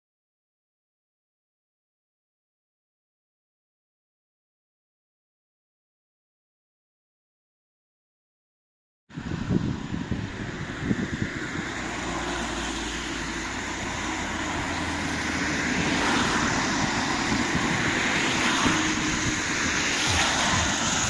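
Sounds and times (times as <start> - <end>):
wind buffeting microphone: 9.1 - 21.0
cars driving past: 9.2 - 21.0.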